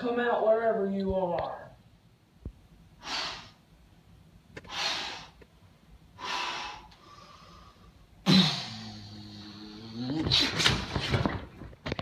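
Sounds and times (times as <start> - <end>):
person taking sharp breaths: 3.0 - 3.6, 4.6 - 5.5, 6.2 - 9.1.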